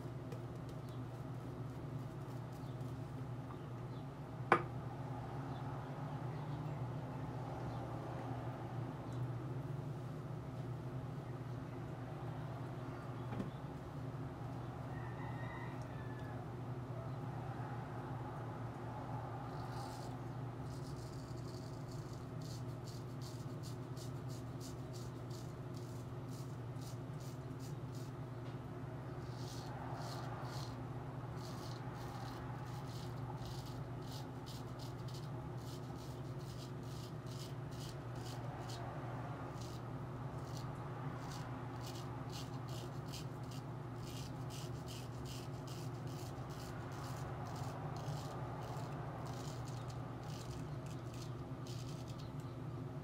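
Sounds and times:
razor scraping stubble: 19.5s - 28.2s, 29.2s - 30.8s, 31.4s - 38.8s, 39.5s - 39.8s, 40.4s - 52.4s.

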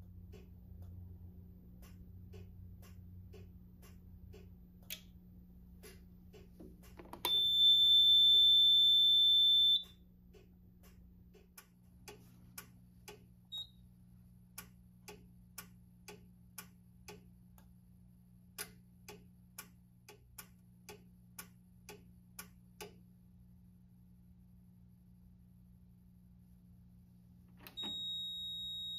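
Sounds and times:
quiet even clicks: 1.7s - 7.4s, 9.8s - 13.7s
high steady beep: 7.2s - 10.0s, 13.5s - 13.8s, 27.7s - 28.9s.

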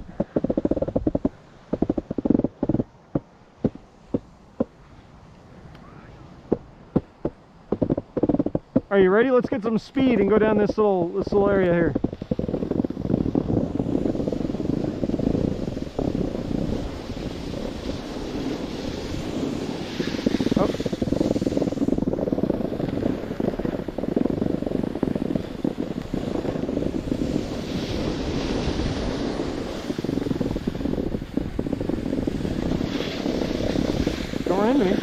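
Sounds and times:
snowboard sliding on snow: 0.0s - 5.1s, 7.0s - 35.0s
wind buffeting microphone: 0.0s - 35.0s
scraping hiss: 9.6s - 35.0s.

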